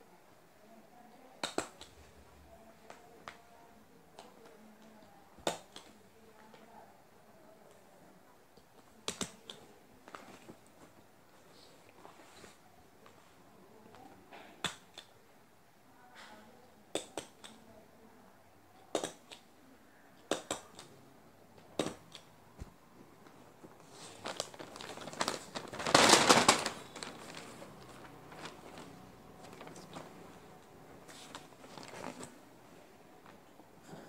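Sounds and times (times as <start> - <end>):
paper rustling and crinkling: 23.2 - 30.4, 31.0 - 32.4.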